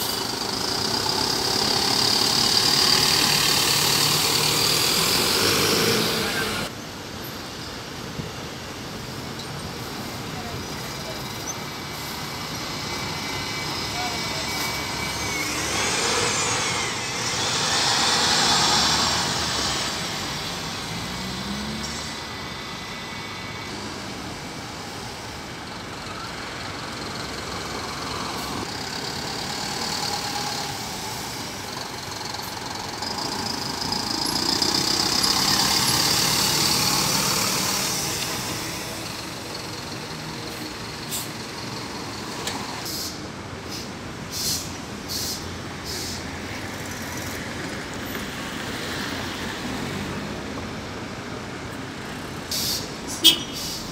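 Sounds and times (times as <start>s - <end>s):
bus engines passing: 0.0s - 53.9s
street traffic: 0.0s - 53.9s
engine whine: 10.8s - 25.6s.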